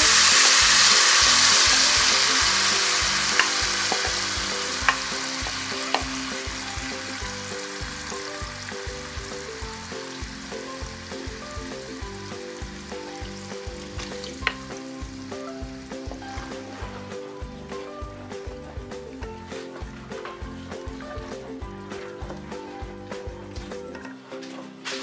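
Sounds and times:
paste sizzling in hot oil: 0.0s - 16.8s.

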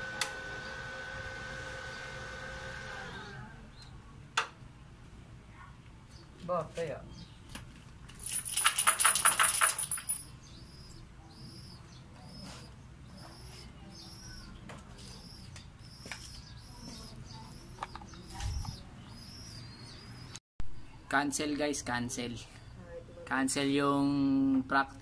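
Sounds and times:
bird chirping: 8.6s - 20.4s.

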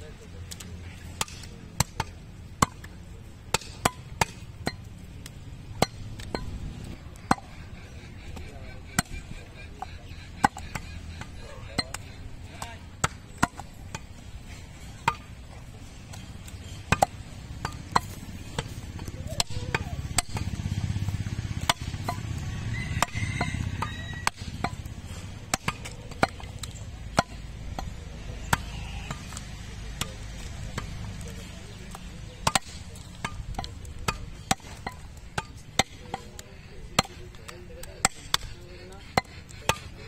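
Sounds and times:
knife chopping meat and bone: 15.9s - 40.0s.

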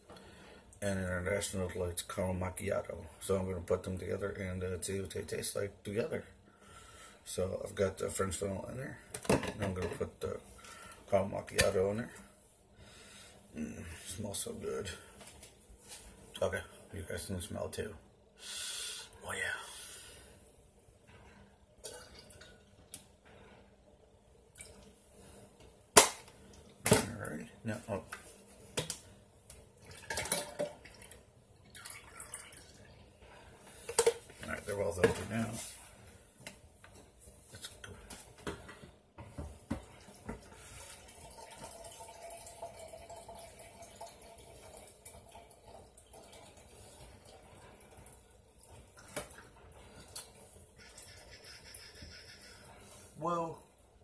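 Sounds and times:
liquid pouring into container: 29.8s - 32.9s, 40.0s - 50.4s.

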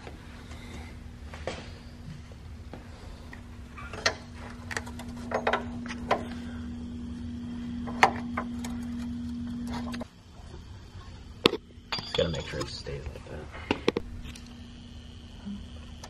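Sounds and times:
low hum: 0.0s - 16.0s
metal clicks and knocks: 3.9s - 6.2s.

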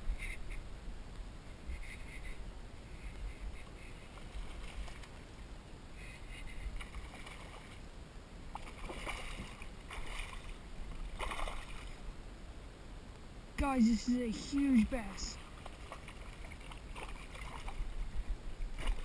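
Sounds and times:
low steady rumble: 0.0s - 19.0s
water splashing against kayak: 3.8s - 5.2s, 6.4s - 7.8s, 8.5s - 12.0s, 15.3s - 19.0s.

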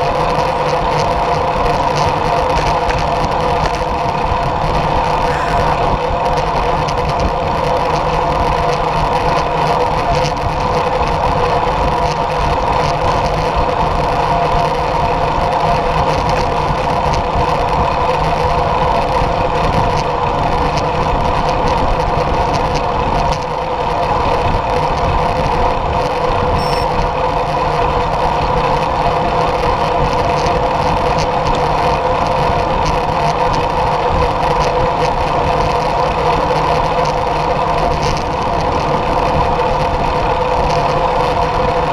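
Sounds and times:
bike tyre noise: 0.0s - 41.9s
constant hum: 0.0s - 41.9s
wind rush: 3.3s - 7.6s.

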